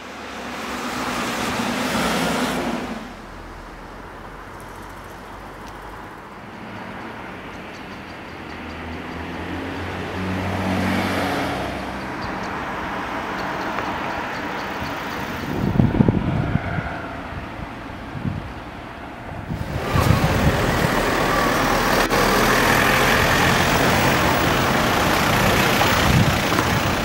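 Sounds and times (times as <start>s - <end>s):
uneven low rumbling: 19.3s - 27.0s
car engine idling: 19.5s - 27.0s.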